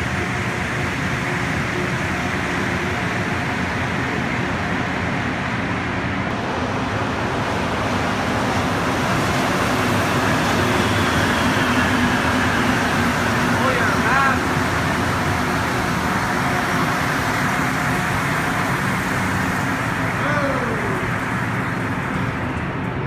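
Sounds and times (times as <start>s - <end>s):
rubber-tyred metro trains: 0.0s - 23.0s.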